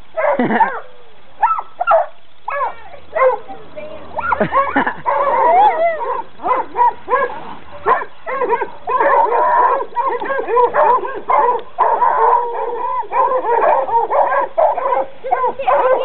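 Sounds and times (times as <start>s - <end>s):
hounds barking and yelping: 0.1s - 16.0s.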